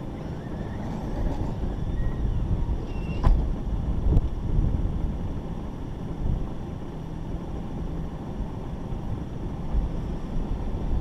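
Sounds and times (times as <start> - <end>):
engine rumbling: 0.0 - 11.0
wind buffeting microphone: 0.0 - 11.0.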